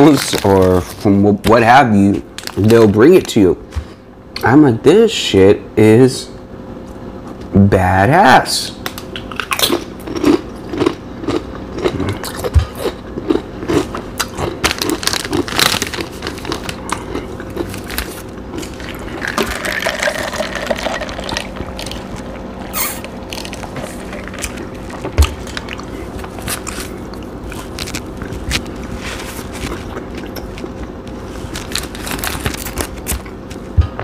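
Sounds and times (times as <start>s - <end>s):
chip bag crinkling: 0.0s - 3.8s, 13.8s - 33.7s
crunchy chewing of chips: 0.0s - 4.5s, 8.9s - 33.8s.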